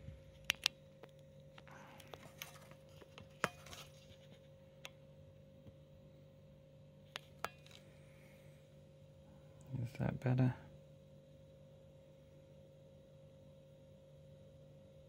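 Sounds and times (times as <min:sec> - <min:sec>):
low electrical hum: 0:00.0 - 0:15.0
small sharp clicks and taps: 0:00.4 - 0:03.8.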